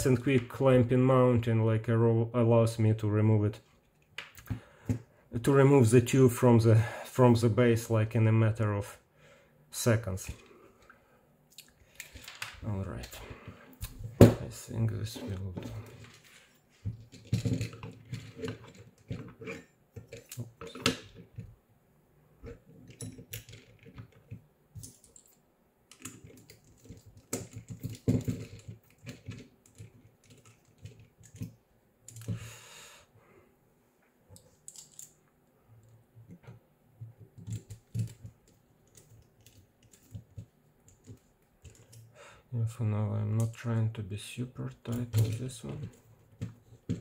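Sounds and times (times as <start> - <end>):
plastic parts handled: 11.6 - 21.6, 22.4 - 32.4, 34.3 - 42.1, 44.8 - 47.0.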